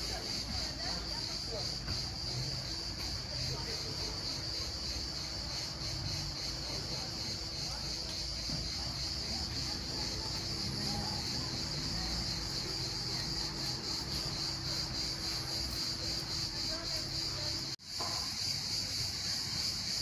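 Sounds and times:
insects trilling: 0.0 - 20.0.

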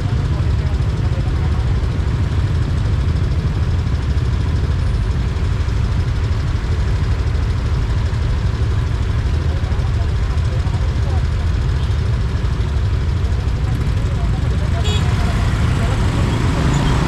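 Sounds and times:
vehicle engine and road noise: 0.0 - 17.0.

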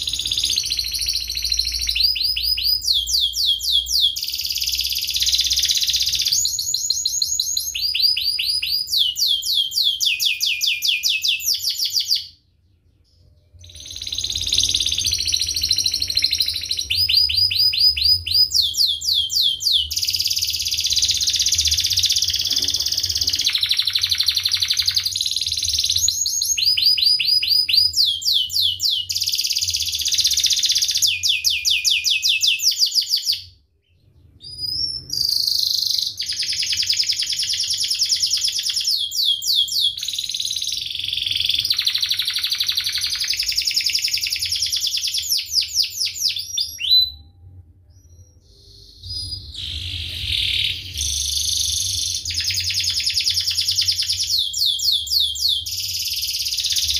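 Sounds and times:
canary singing trills: 0.0 - 56.9.

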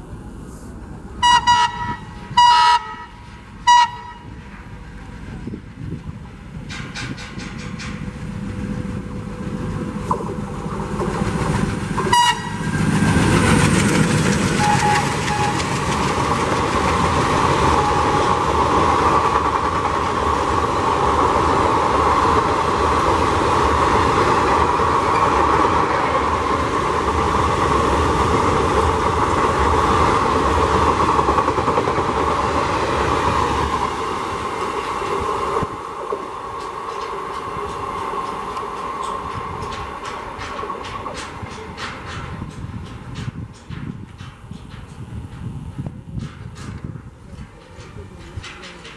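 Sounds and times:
locomotive engines passing: 0.0 - 48.9
train horn blast: 1.2 - 4.4, 12.0 - 12.7, 14.6 - 15.7.

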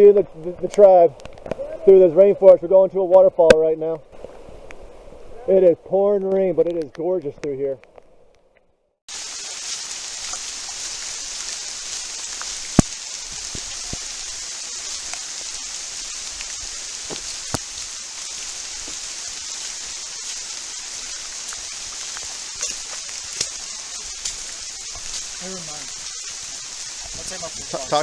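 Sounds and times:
pouring rain: 0.0 - 7.4, 9.1 - 28.0
raindrop clicks: 0.6 - 1.7, 6.1 - 8.7, 9.6 - 27.8.

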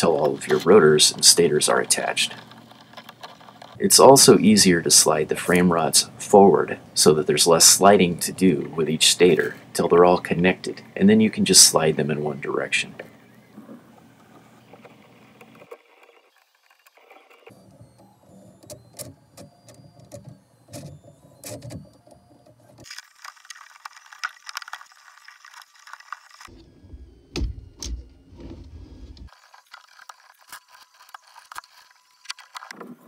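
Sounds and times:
plastic parts clicking and scraping: 0.0 - 4.2, 13.0 - 26.6, 27.4 - 33.0.

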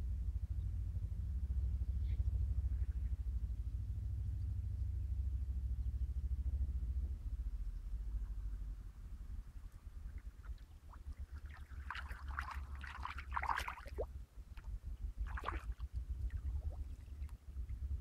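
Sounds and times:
wind rumble on microphone: 0.0 - 18.0
fish splashing at water surface: 10.2 - 14.1, 15.2 - 17.3.

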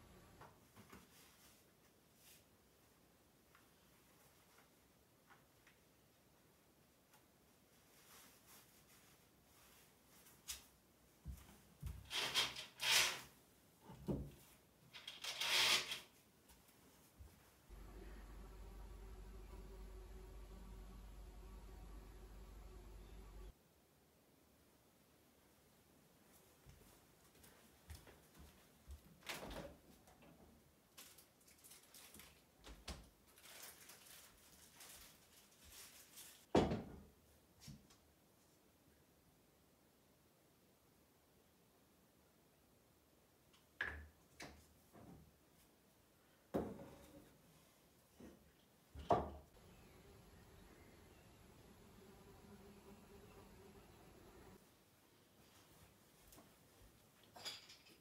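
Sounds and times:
soft rustling: 7.1 - 11.8, 54.3 - 57.2
fabric curtain rustling: 7.7 - 10.8, 33.3 - 36.5.

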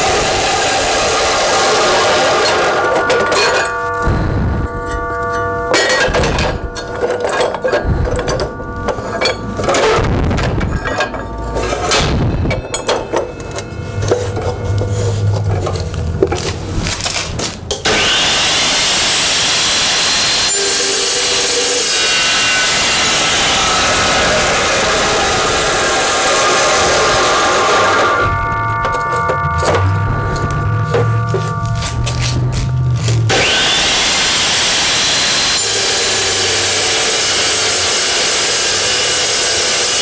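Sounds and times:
saw cutting through steel: 0.0 - 10.2, 17.8 - 29.3, 30.0 - 40.0
steel stock clinking: 4.8 - 17.9.

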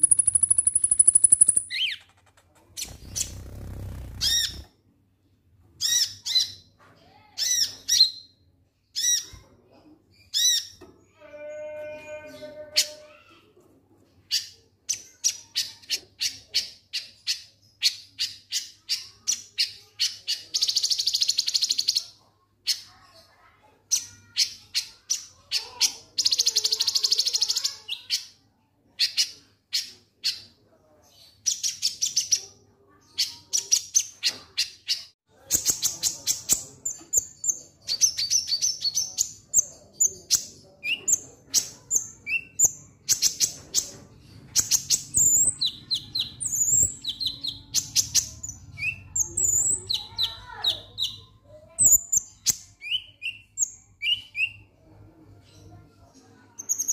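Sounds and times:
sunbird high-pitched calls: 0.0 - 2.0
bird buzzy rattles: 1.9 - 4.6.

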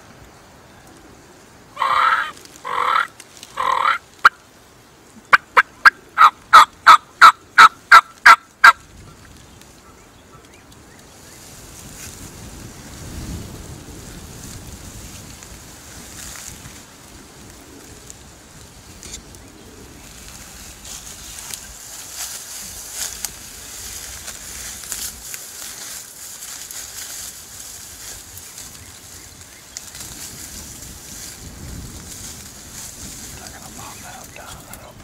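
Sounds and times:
turkey call yelps: 1.8 - 4.4, 5.3 - 8.8
wind noise: 5.2 - 35.0.

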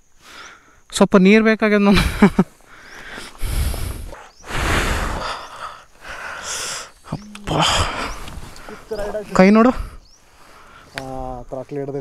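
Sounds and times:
person breathing hard: 2.6 - 8.9
person grunting: 7.1 - 8.2.

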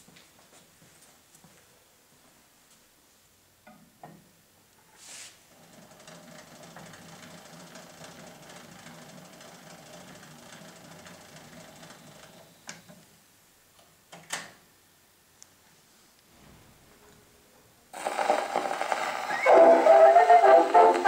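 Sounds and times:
clockwork mechanism whirring: 5.6 - 12.5, 18.0 - 21.0.

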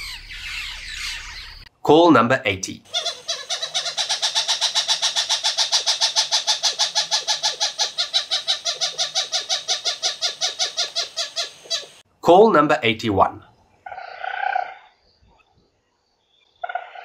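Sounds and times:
animal call rapid short notes: 2.9 - 12.0.

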